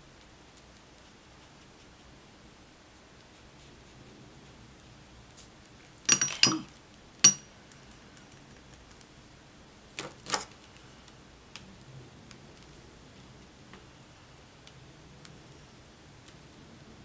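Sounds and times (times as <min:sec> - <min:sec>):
brush and tweezers knocking: 0:06.1 - 0:07.4
paintbrush clinking on ceramic plate: 0:06.1 - 0:07.5.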